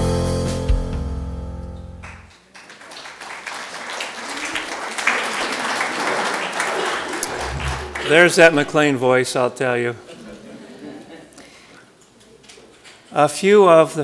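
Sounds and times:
congregation applauding: 2.0s - 8.9s.

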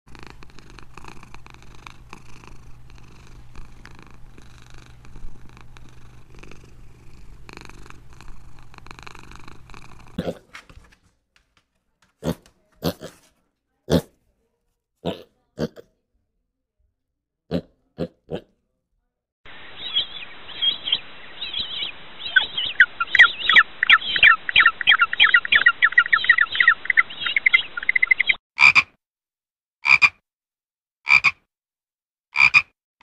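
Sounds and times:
cat purring: 0.1s - 10.4s
pig grunts: 0.1s - 10.5s, 12.2s - 13.3s, 13.9s - 14.2s, 15.0s - 15.9s, 17.5s - 18.5s.

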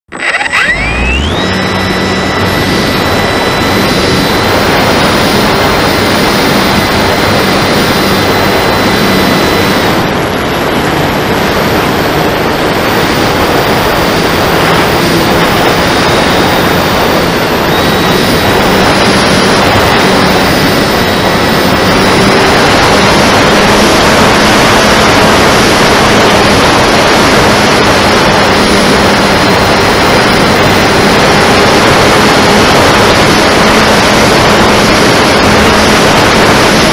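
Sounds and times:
propeller drone: 0.0s - 36.9s
faint high motor whine: 0.1s - 36.9s.

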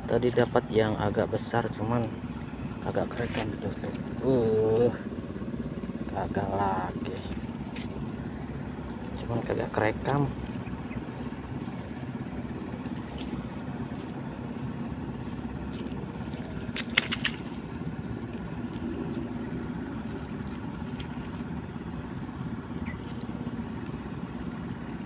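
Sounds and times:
motor humming: 0.0s - 25.0s
sharp clicks: 16.7s - 17.6s.

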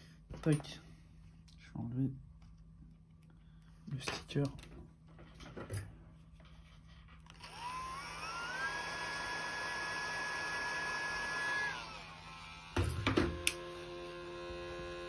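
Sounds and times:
small electric motor whining: 7.3s - 15.0s.

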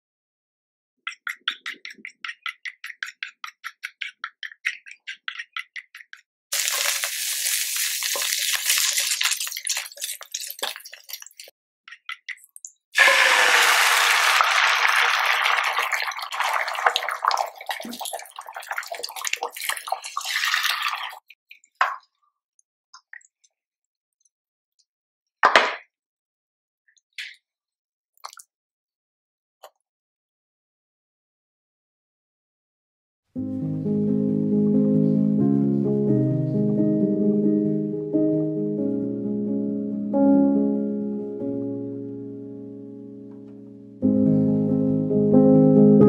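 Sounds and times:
spoon beating eggs in bowl: 1.1s - 6.9s, 8.1s - 13.2s
egg sizzling in pan: 6.5s - 11.3s, 13.0s - 17.8s.

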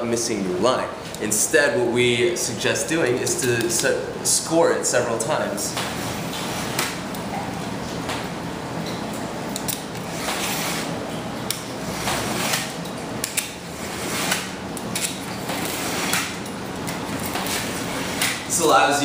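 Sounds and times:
utility knife scoring wood veneer: 13.8s - 14.5s.

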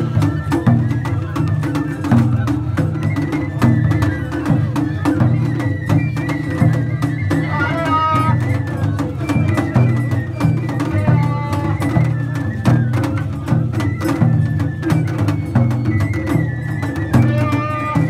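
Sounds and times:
festival drums: 0.0s - 18.0s.

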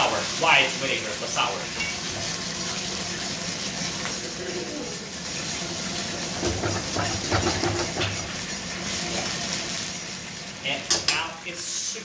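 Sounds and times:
sauce sizzling in a wok: 0.0s - 12.0s
ladle stirring and scraping wok: 6.1s - 9.4s.

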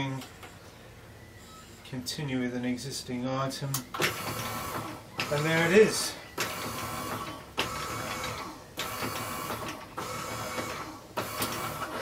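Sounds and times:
felting machine motor humming: 3.9s - 12.0s.

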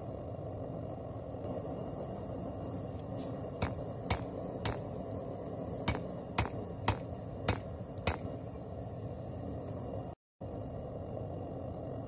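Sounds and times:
hammer striking metal on anvil: 3.6s - 4.9s, 5.8s - 8.3s.

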